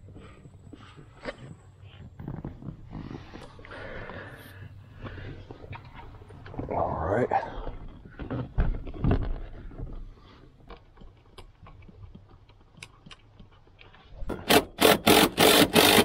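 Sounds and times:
impact driver bursts: 0:14.3 - 0:16.0.

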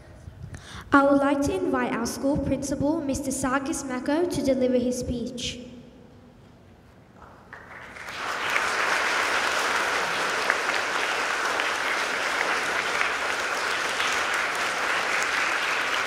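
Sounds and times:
audience clapping: 0:07.2 - 0:16.0.

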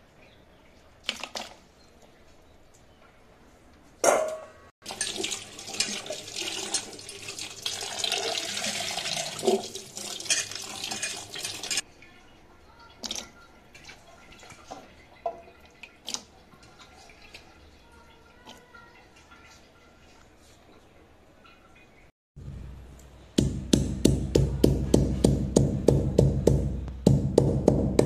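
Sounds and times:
tap water running into pot: 0:04.8 - 0:11.8.

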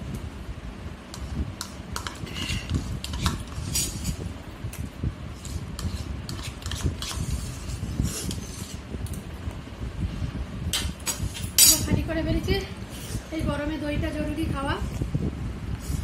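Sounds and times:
spoon scraping plastic bowl: 0:01.9 - 0:04.2, 0:05.4 - 0:08.8.

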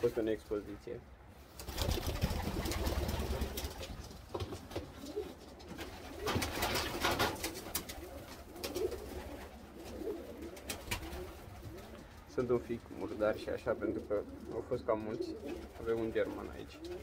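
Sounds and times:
rustling: 0:00.0 - 0:17.0
pigeons cooing: 0:04.8 - 0:12.3, 0:12.9 - 0:17.0.

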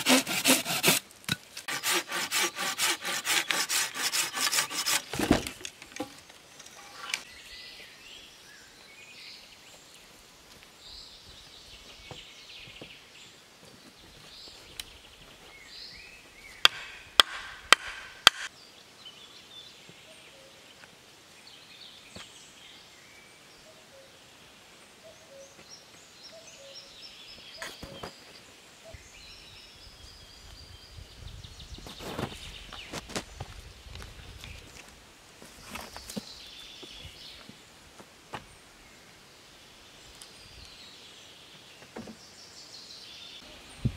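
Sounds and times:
thuds: 0:05.1 - 0:06.2
sharp knocks: 0:16.6 - 0:18.5
birds chirping: 0:18.5 - 0:33.5.

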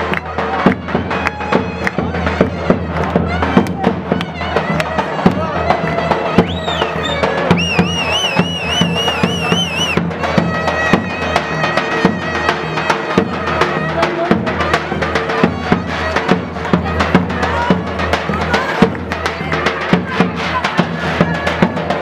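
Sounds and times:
heavy drum strokes: 0:00.0 - 0:22.0.

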